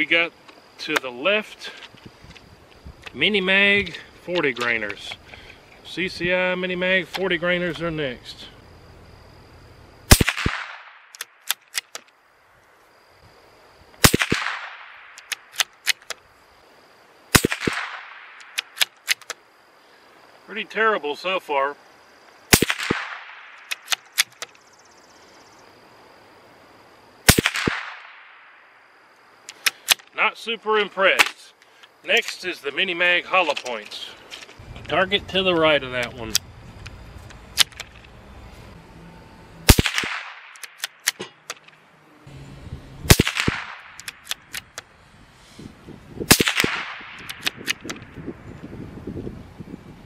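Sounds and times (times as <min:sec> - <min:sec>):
rifle shot with echoes: 0:10.1 - 0:11.1, 0:14.0 - 0:15.2, 0:17.3 - 0:18.6, 0:22.5 - 0:23.7, 0:27.3 - 0:28.6, 0:39.7 - 0:41.3, 0:43.1 - 0:44.3, 0:46.3 - 0:47.8
rifle bolt clicks: 0:11.1 - 0:12.1, 0:43.3 - 0:44.9, 0:46.5 - 0:48.0.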